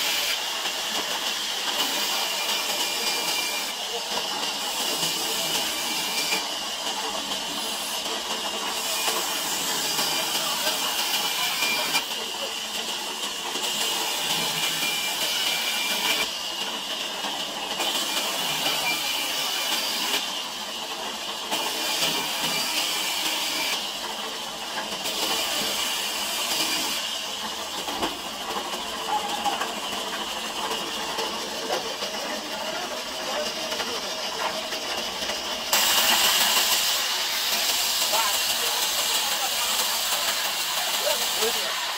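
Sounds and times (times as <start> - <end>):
band saw cutting timber: 0.0 - 12.5, 13.5 - 16.9, 17.6 - 20.6, 21.5 - 28.8, 35.6 - 41.9.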